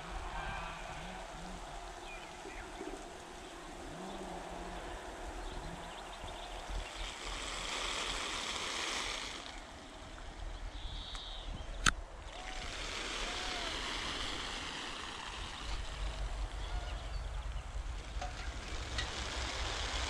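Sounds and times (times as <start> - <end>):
garden sprinkler spray hissing: 6.5 - 10.2, 12.2 - 20.0.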